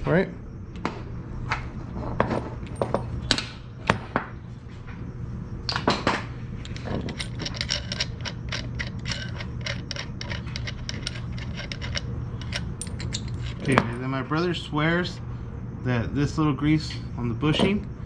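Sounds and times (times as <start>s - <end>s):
metallic clicks and knocks: 6.6s - 14.0s.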